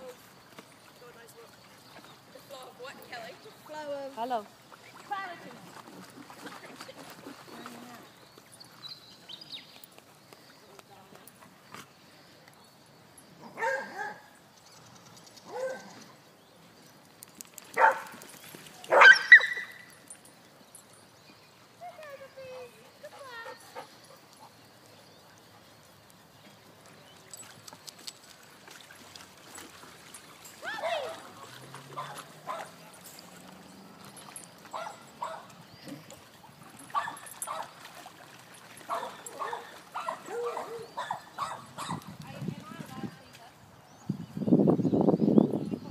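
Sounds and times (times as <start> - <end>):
dog barking: 13.6 - 14.2, 15.5 - 15.9, 17.8 - 18.1, 18.9 - 19.6, 32.0 - 32.7, 34.7 - 35.5, 36.9 - 37.7, 38.9 - 42.0.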